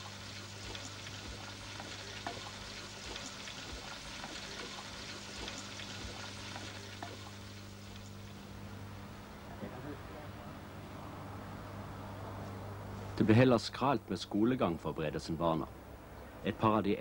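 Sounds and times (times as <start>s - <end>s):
crackly tape hiss: 0.0s - 10.8s
low electrical hum: 0.0s - 17.0s.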